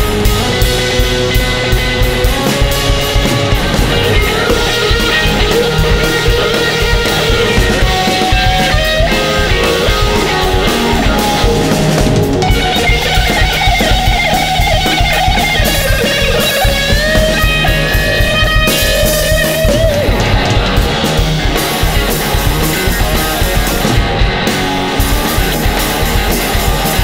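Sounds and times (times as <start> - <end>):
drum kit playing: 0.0 - 27.0
electric guitar bending notes: 0.0 - 27.0.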